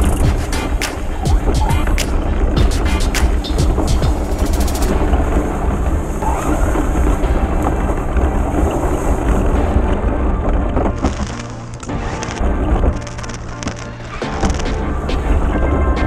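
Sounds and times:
sharp clicks: 0:00.0 - 0:04.9, 0:10.9 - 0:15.2.

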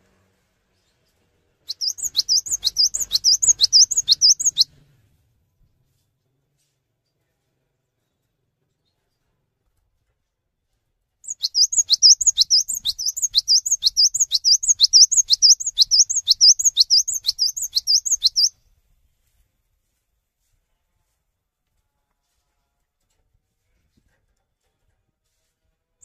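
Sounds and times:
bird singing sharp sweeping notes: 0:01.7 - 0:04.7, 0:11.3 - 0:18.5.

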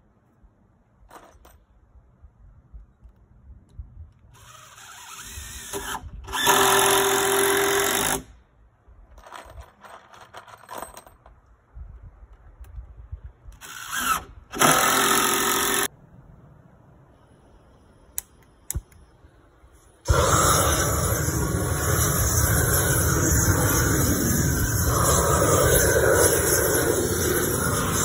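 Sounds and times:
cordless drill driving screws: 0:04.3 - 0:08.2, 0:13.6 - 0:15.9.

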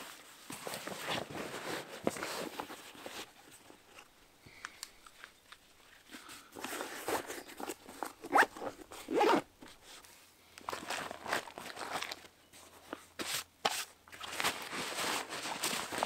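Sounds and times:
fabric rustling: 0:05.1 - 0:10.0, 0:14.2 - 0:16.0
zip pulled in rasping strokes: 0:08.3 - 0:09.4.

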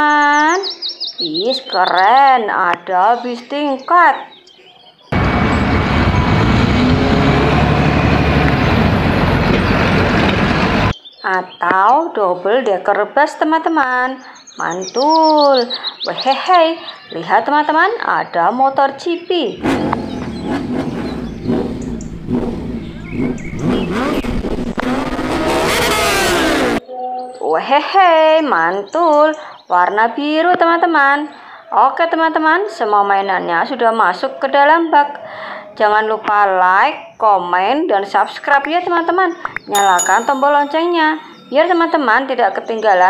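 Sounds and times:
bus engine rumble: 0:05.2 - 0:10.9, 0:19.6 - 0:25.7
road noise: 0:05.2 - 0:11.0, 0:19.5 - 0:26.8.

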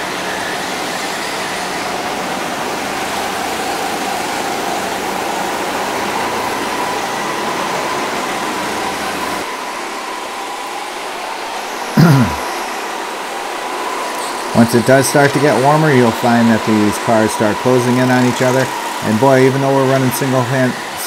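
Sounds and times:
go-karts racing: 0:00.0 - 0:21.0
faint whine: 0:06.2 - 0:21.0.

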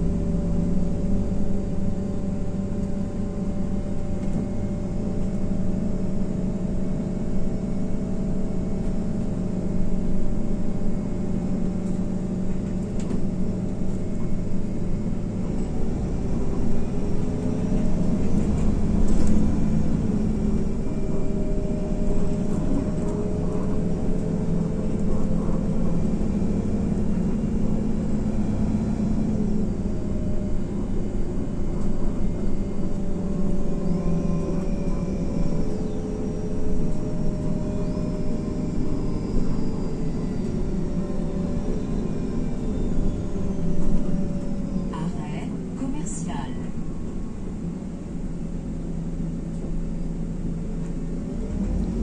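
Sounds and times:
bus engine droning: 0:00.0 - 0:52.0
road rumble: 0:00.0 - 0:52.0.

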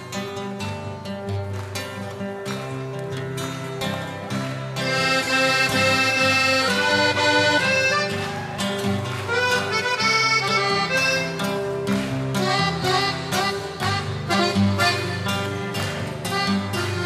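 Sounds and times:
strummed chords: 0:00.0 - 0:17.0
melody of held notes: 0:04.8 - 0:08.5.

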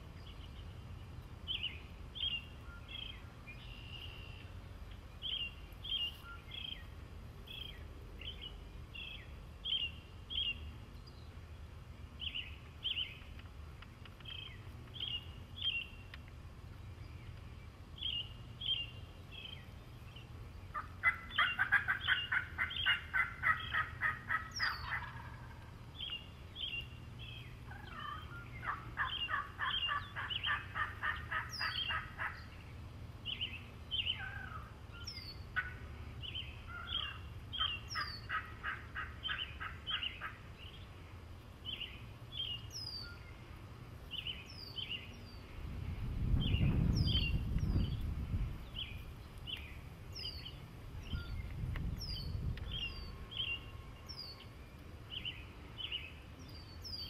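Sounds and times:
songbirds chirping: 0:00.0 - 0:57.0
turkey gobbling: 0:20.7 - 0:25.7, 0:27.7 - 0:32.4, 0:35.6 - 0:35.8, 0:36.7 - 0:40.4.

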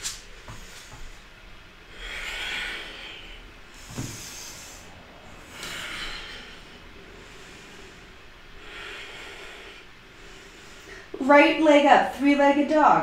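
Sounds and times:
person breathing audibly: 0:00.2 - 0:11.2
thumps on yoga mat: 0:03.9 - 0:04.4.

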